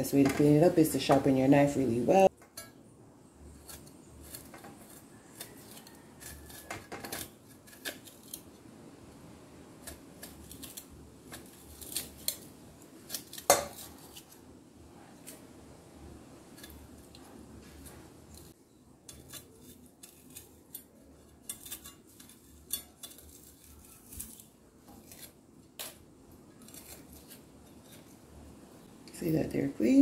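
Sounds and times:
knife scraping on sharpener: 3.5 - 8.5, 16.6 - 25.9, 26.6 - 28.2.

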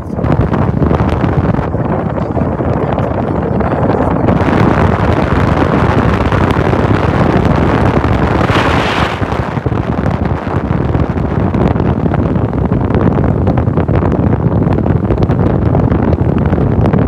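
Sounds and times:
wind buffeting a phone microphone: 0.0 - 17.0
car road noise: 7.1 - 10.5.

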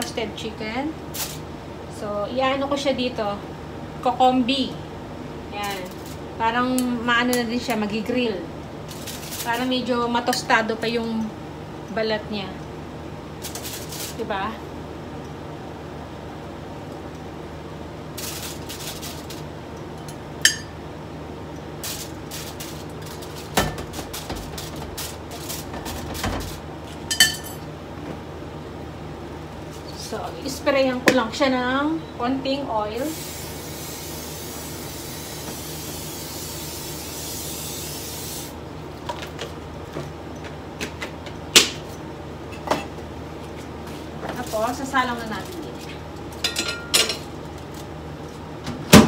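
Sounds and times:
steady low hum: 0.0 - 49.0
aerosol spray hissing: 33.1 - 38.6.

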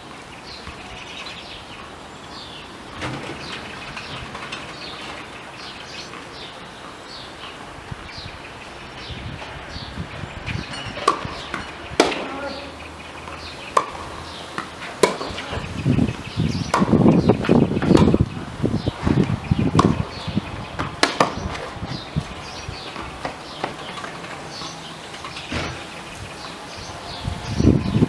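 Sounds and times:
tennis racket strikes: 11.0 - 12.6, 13.7 - 15.6, 16.7 - 18.2, 21.0 - 21.6
tennis ball bounces: 11.0 - 15.8, 16.5 - 18.3, 19.0 - 22.0, 22.8 - 24.7.

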